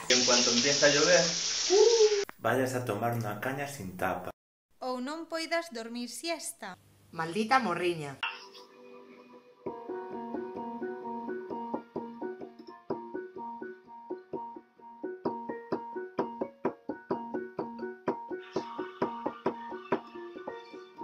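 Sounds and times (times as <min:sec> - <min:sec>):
electronic keyboard piano tune: 0:09.3 - 0:21.0.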